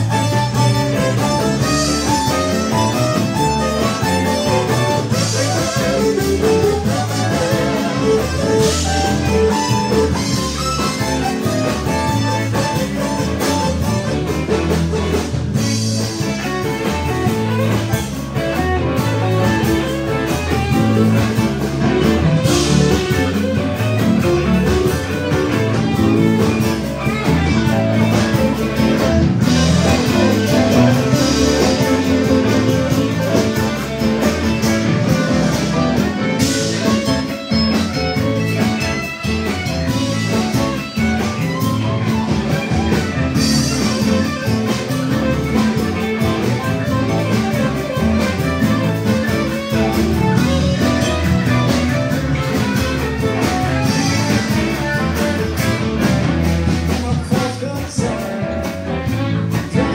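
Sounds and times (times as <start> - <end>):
bass guitar: 0.0 - 59.9
drum kit: 0.0 - 59.9
electric guitars: 0.0 - 59.9.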